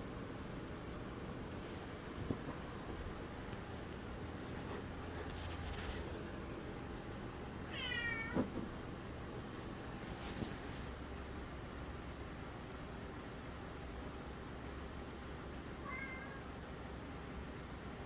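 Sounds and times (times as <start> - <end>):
cat meowing: 7.7 - 8.4, 15.8 - 16.5.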